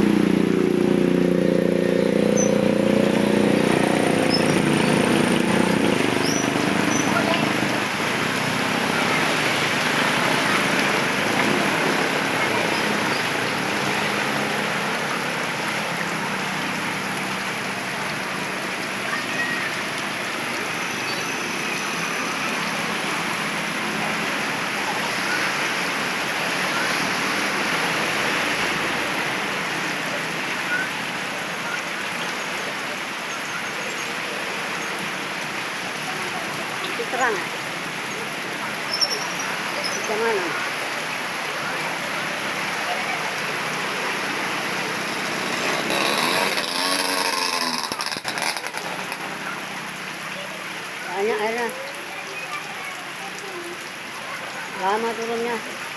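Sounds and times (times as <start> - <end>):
heavy rain falling: 0.0 - 55.9
water streaming off roof edge: 0.0 - 55.9.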